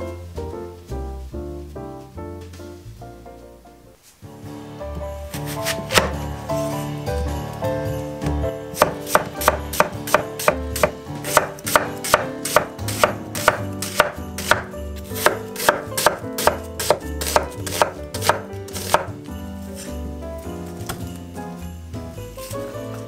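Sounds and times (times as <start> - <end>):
knife chopping on wooden board: 5.3 - 6.2, 8.7 - 19.2.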